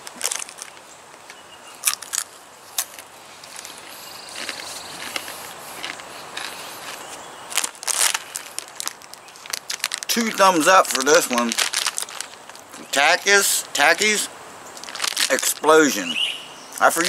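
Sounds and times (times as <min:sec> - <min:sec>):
crunching bites of chips: 0:00.0 - 0:00.8, 0:01.8 - 0:12.9, 0:14.8 - 0:15.8
quiet chewing: 0:01.8 - 0:10.1.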